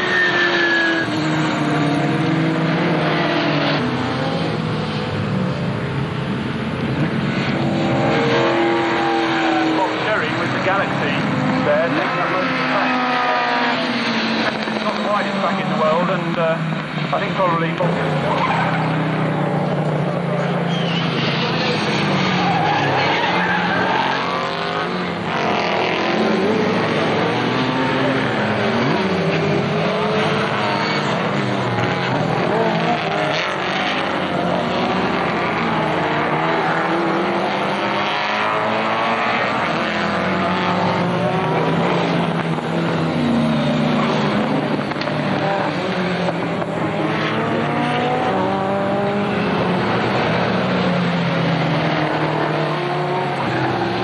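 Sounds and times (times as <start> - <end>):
race car engines at full throttle: 0.0 - 54.0.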